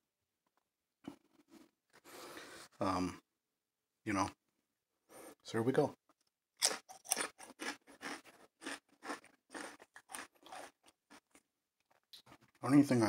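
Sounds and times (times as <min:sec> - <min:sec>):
potato chip crunching: 0:06.6 - 0:12.0.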